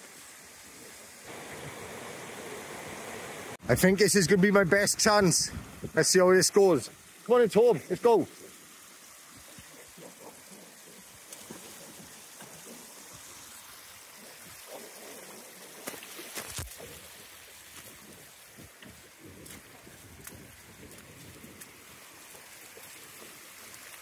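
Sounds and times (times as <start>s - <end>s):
river rushing over rocks: 1.3s - 3.6s
footsteps splashing through water: 14.3s - 24.0s.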